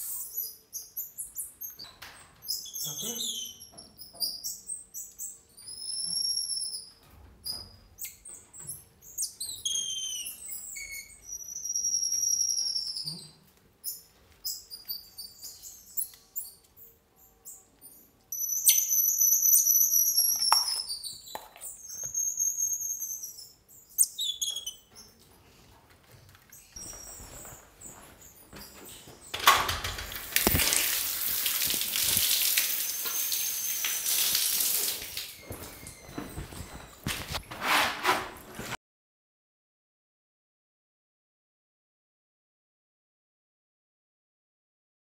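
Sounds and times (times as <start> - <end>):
monkeys chirping: 17.9 - 25.1.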